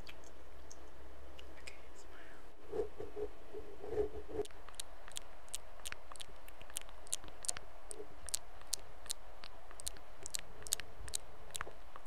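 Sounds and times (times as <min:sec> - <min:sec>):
low steady hiss: 0:00.0 - 0:12.0
asmr clicks and ticks: 0:04.4 - 0:07.6, 0:08.3 - 0:11.7.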